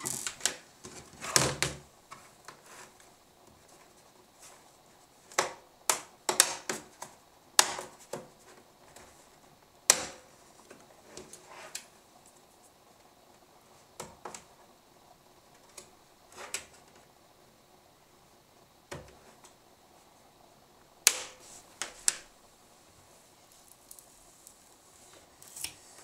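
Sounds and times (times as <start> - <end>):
loud plastic snap: 7.6 - 7.9, 21.1 - 22.2.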